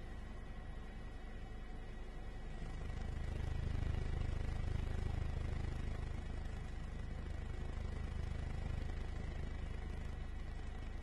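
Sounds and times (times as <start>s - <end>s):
helicopter rotor and engine: 0.0s - 11.0s.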